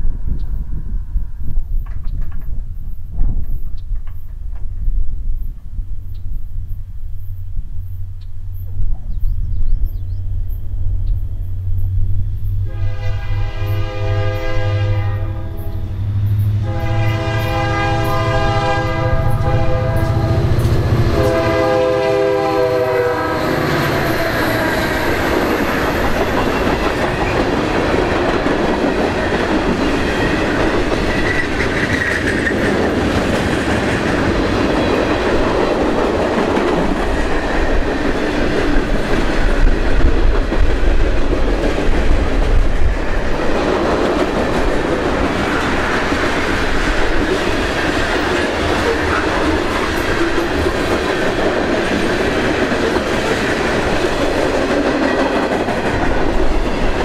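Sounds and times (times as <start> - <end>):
diesel locomotives working hard: 6.7 - 57.0
train air horn: 12.6 - 25.2.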